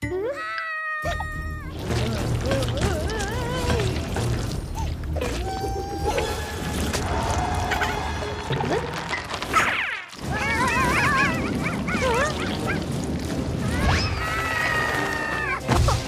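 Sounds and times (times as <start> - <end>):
background music: 0.0 - 9.5, 10.3 - 16.0
squeaky gibberish cartoon voices: 4.7 - 6.7, 9.5 - 13.0.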